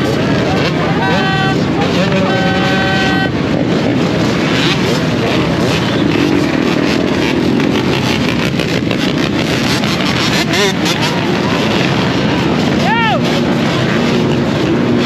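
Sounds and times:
dirt bike engines revving: 0:00.0 - 0:15.0
vehicle horn: 0:00.6 - 0:03.6.

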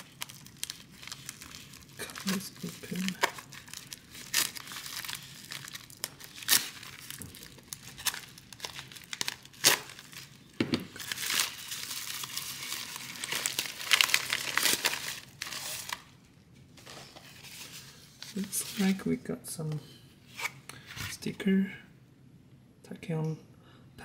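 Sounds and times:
plastic mailer tearing and crinkling: 0:00.0 - 0:16.2
sharp plastic crackles: 0:00.0 - 0:16.2.

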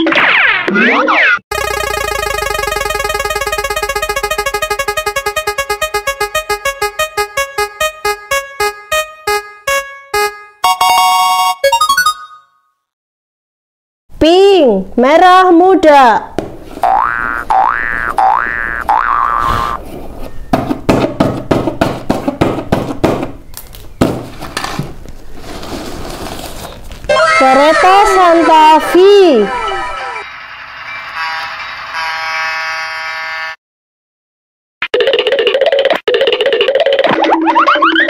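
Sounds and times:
prize wheel electric piano notes: 0:01.5 - 0:12.5.

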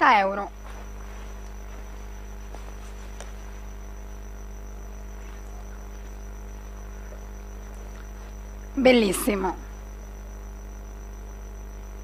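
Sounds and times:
electrical mains hum: 0:00.0 - 0:12.0
thin high whine: 0:00.0 - 0:12.0
faint ticks: 0:00.6 - 0:08.8.

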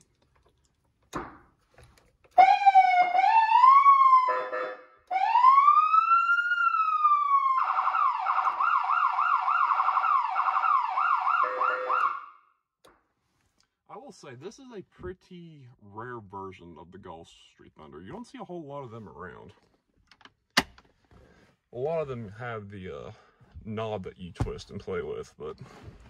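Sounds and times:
electronic siren wailing and yelping: 0:02.4 - 0:12.4
siren horn blast: 0:02.4 - 0:12.4.

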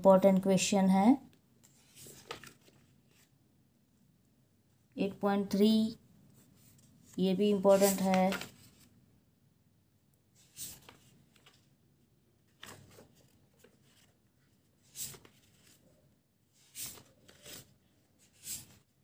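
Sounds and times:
pages turning: 0:01.6 - 0:03.4, 0:06.6 - 0:08.9, 0:10.4 - 0:11.7, 0:12.4 - 0:15.9, 0:16.6 - 0:18.9.

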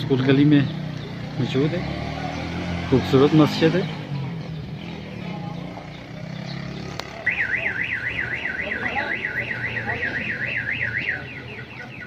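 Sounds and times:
car alarm siren warbling: 0:07.2 - 0:12.0.

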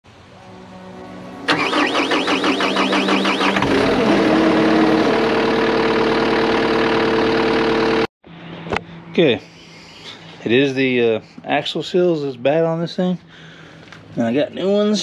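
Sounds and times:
engine cranking and idling: 0:01.5 - 0:08.1.

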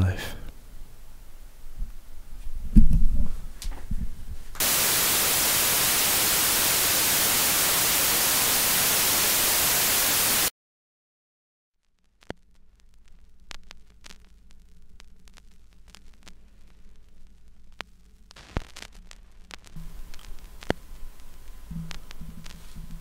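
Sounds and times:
loud white noise static: 0:04.6 - 0:10.5, 0:17.3 - 0:23.0.

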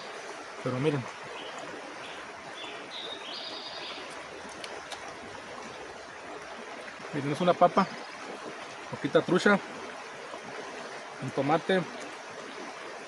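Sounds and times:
river running: 0:00.0 - 0:13.0.

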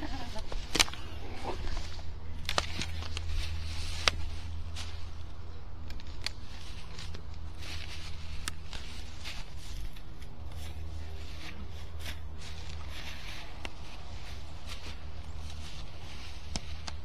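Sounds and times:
rustling in dry leaves: 0:00.0 - 0:17.0
sharp clicks and snaps: 0:05.8 - 0:07.4.

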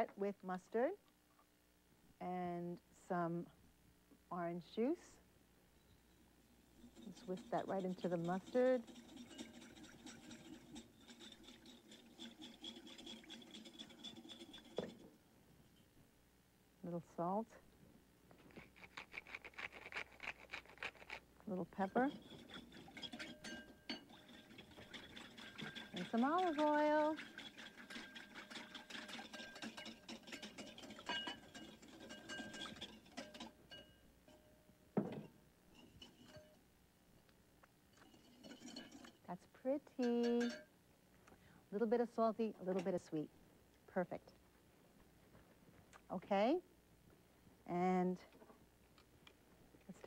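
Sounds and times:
whisk scraping in a bowl: 0:06.8 - 0:15.0, 0:21.8 - 0:33.5, 0:35.8 - 0:36.5.

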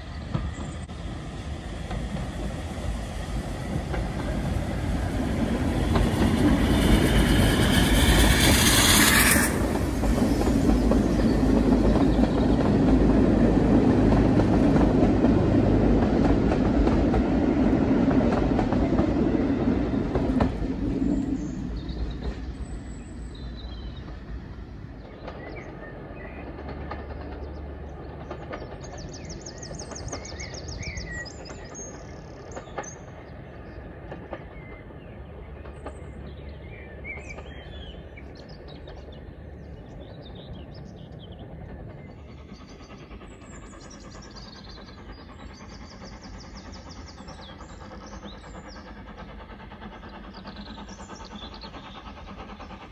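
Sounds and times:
steam locomotive hissing: 0:00.0 - 0:25.8, 0:40.8 - 0:52.9
birdsong: 0:00.0 - 0:52.9
train coaches clattering over rails: 0:00.0 - 0:52.9.

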